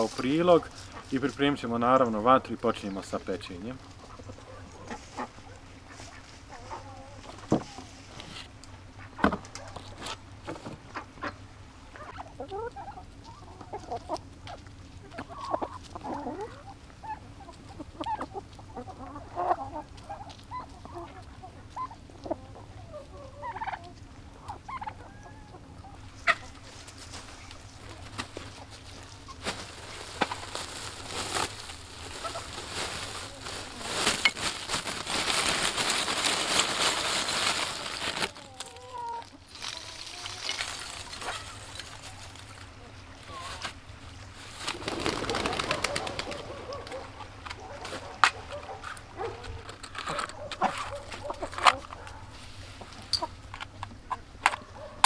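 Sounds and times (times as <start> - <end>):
hens clucking: 0.0 - 55.0
plastic sack rustling: 26.6 - 42.7, 43.3 - 47.0.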